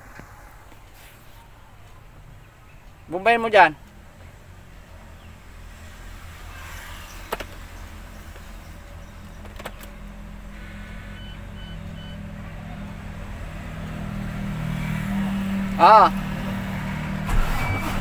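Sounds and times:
diesel engine idling: 7.6s - 18.0s.

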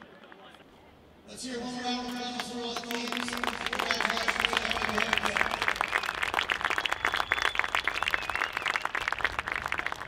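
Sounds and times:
crowd applauding: 2.4s - 10.0s.

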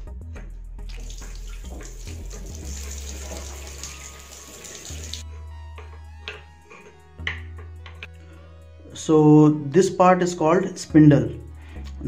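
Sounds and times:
soft background music: 0.0s - 12.0s
running water rushing: 0.9s - 5.2s.

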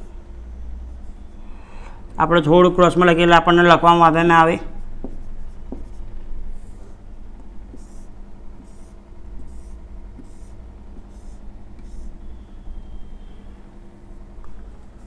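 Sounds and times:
marker squeaking on whiteboard: 4.8s - 13.5s.

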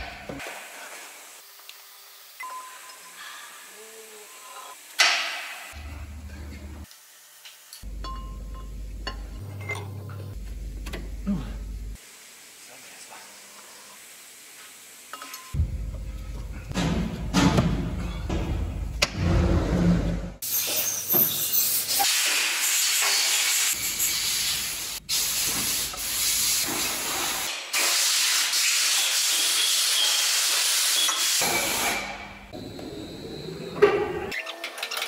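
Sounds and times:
loud steady hissing: 11.2s - 15.8s.

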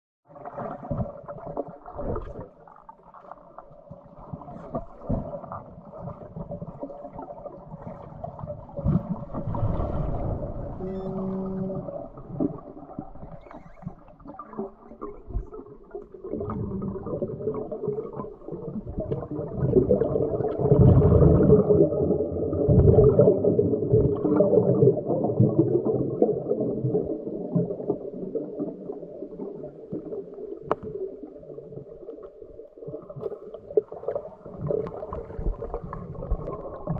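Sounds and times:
muffled underwater water noise: 0.2s - 36.9s.

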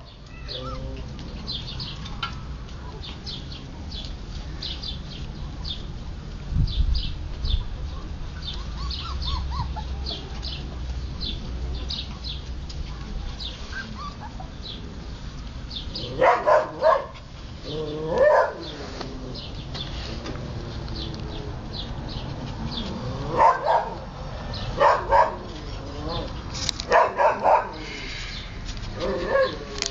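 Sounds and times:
puppies barking: 8.4s - 10.6s, 15.9s - 19.6s, 22.7s - 27.9s, 29.0s - 29.9s.

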